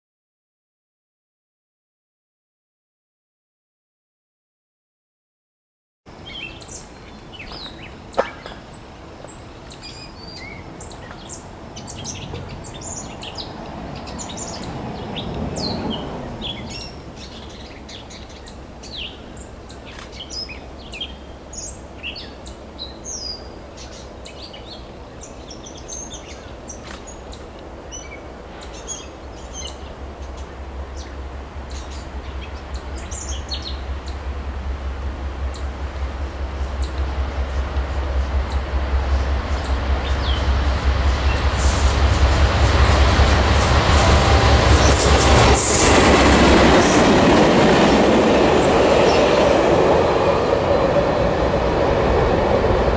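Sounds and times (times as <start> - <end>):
approaching train rumble: 6.1 - 52.9
birds chirping and singing: 6.3 - 34.2
soft rushing swell: 27.8 - 52.9.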